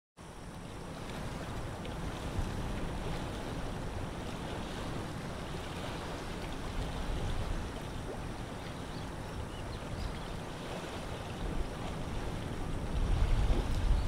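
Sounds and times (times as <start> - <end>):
water lapping at shore: 0.2 - 14.0
wind: 0.2 - 14.0
wind rumble on microphone: 0.6 - 14.0.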